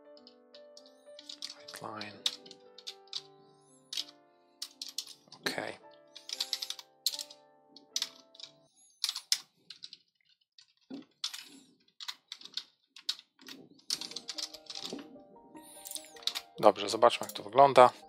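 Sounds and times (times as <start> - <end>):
soft background music: 0.0 - 9.4, 13.4 - 18.0
keyboard typing: 0.0 - 10.0, 10.9 - 17.4.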